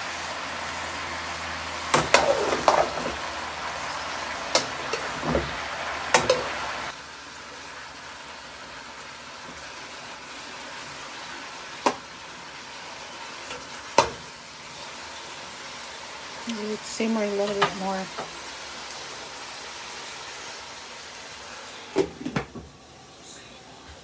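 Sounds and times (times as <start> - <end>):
vegetables sizzling in a pan: 0.0 - 24.0.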